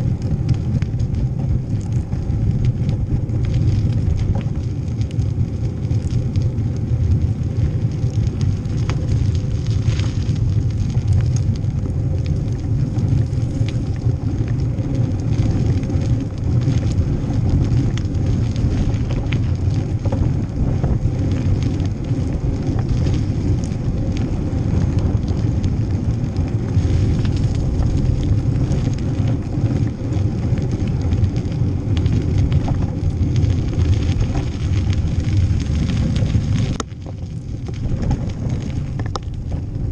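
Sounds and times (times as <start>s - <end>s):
bike clicks and rattles: 0.0s - 39.9s
wind buffeting microphone: 0.0s - 39.9s.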